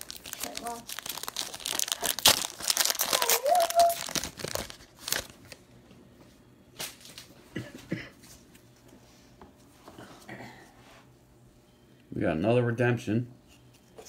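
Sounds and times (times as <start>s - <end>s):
plastic wrapper tearing and crinkling: 0.0s - 5.6s.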